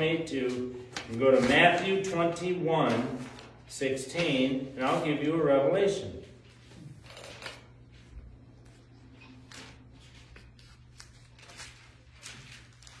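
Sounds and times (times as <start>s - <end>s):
pages being turned: 0.5s - 2.0s, 8.6s - 13.0s.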